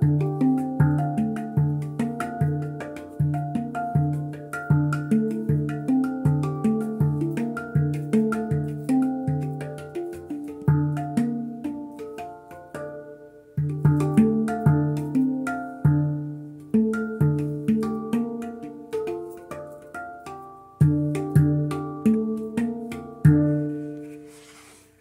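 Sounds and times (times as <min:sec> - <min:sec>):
handpan notes ringing: 0:00.0 - 0:24.5.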